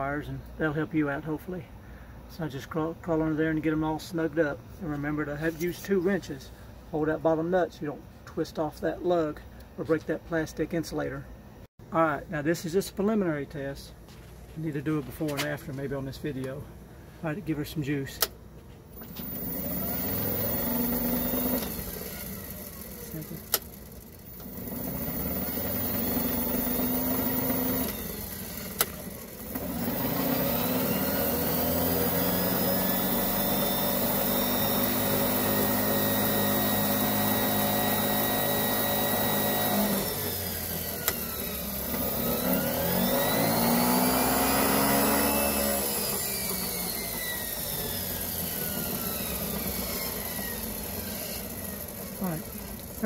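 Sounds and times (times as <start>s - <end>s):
electric motor whine: 19.0s - 53.0s.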